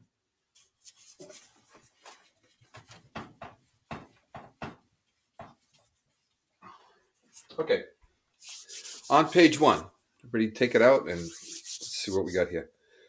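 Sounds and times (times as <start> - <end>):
eraser rubbing whiteboard: 8.4 - 9.9, 11.1 - 12.4.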